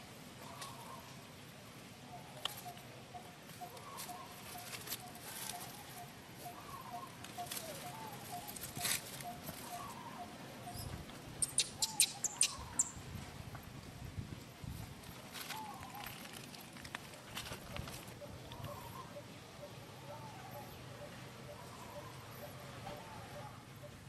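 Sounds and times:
dry leaves crackling: 0:03.9 - 0:06.0, 0:15.2 - 0:18.2.

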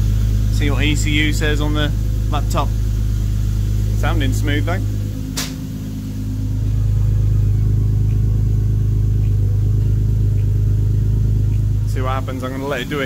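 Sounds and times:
car engine idling: 0:00.0 - 0:13.0
sharp click: 0:05.4 - 0:05.6.

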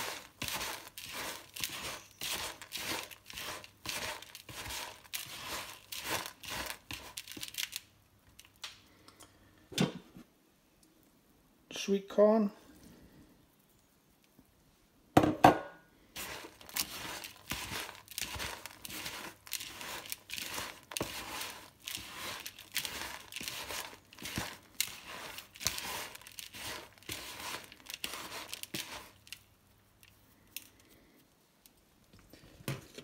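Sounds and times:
hand mixing crumbly food in bowl: 0:00.0 - 0:08.6, 0:16.0 - 0:33.0.

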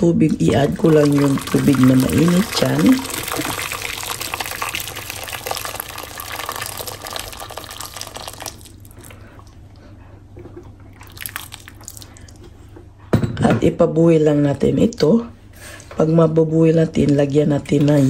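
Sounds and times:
water pouring into pot: 0:00.4 - 0:09.1, 0:11.0 - 0:12.4.

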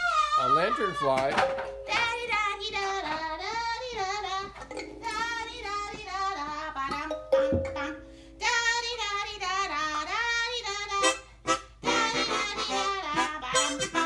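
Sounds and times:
harmonica playing sliding phrases: 0:10.9 - 0:14.0.

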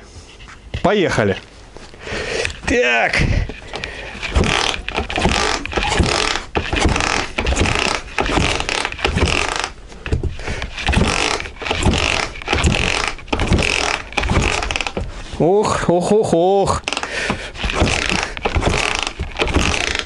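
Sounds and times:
motorcycle engine cranked by hand: 0:03.6 - 0:15.2, 0:16.8 - 0:20.0.

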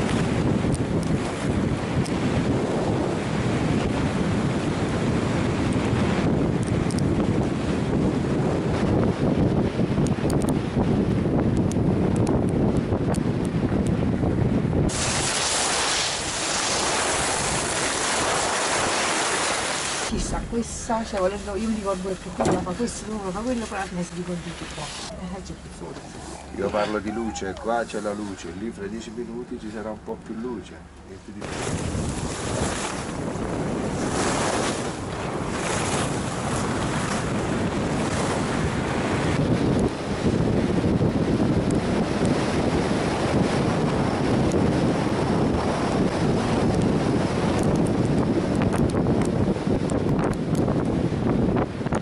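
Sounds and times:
wind buffeting microphone: 0:00.0 - 0:52.0
skis sliding over packed snow: 0:15.0 - 0:20.1.

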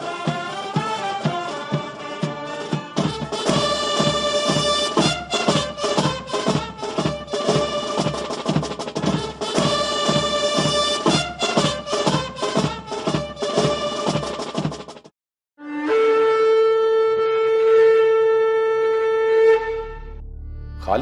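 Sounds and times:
held wind instrument notes: 0:00.0 - 0:14.4, 0:15.6 - 0:20.1
steady drumbeat: 0:00.0 - 0:15.1.

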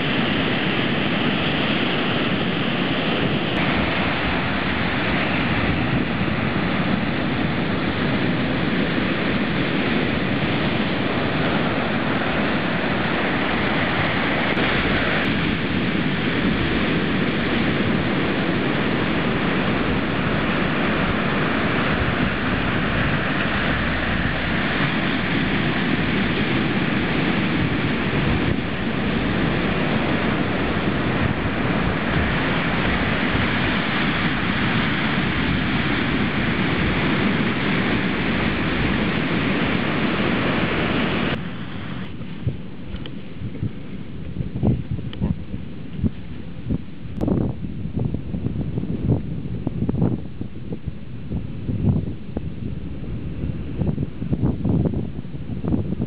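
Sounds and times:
ocean surf breaking: 0:00.0 - 0:43.4
wind on microphone: 0:00.0 - 0:56.0.

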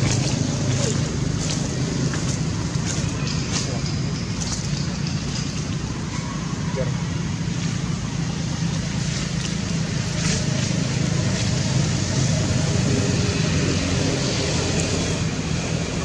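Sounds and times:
road traffic engine drone: 0:00.0 - 0:16.0.

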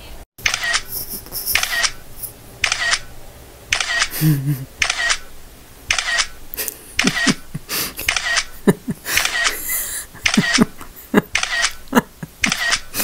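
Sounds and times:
phone camera shutter clicking: 0:00.4 - 0:00.9, 0:01.5 - 0:02.0, 0:02.6 - 0:03.1, 0:03.7 - 0:04.2, 0:04.8 - 0:05.3, 0:05.9 - 0:06.4, 0:07.0 - 0:07.4, 0:08.0 - 0:08.6, 0:09.2 - 0:09.6, 0:10.2 - 0:10.7, 0:11.3 - 0:11.8, 0:12.4 - 0:13.0.

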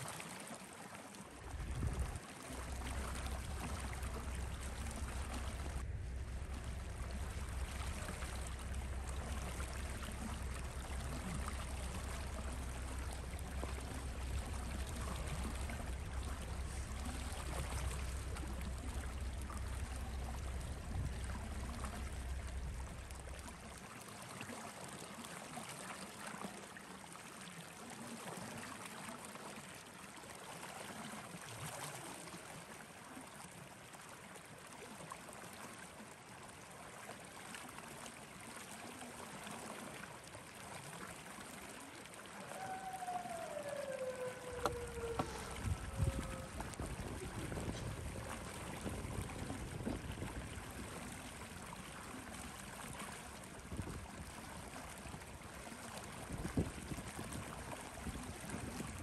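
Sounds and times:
wind buffeting microphone: 0:01.4 - 0:23.7, 0:42.6 - 0:51.9, 0:52.9 - 0:59.0.

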